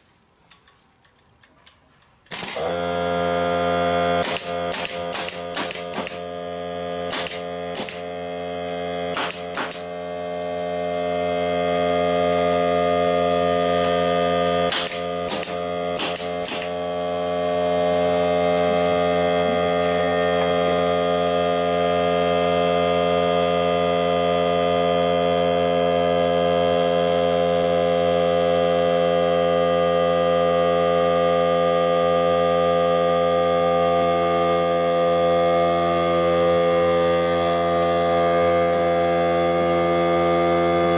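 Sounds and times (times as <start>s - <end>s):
air nailer shots: 2.3s - 6.4s, 7.0s - 8.2s, 9.0s - 10.2s, 13.7s - 17.1s
air compressor motor running: 2.3s - 40.9s.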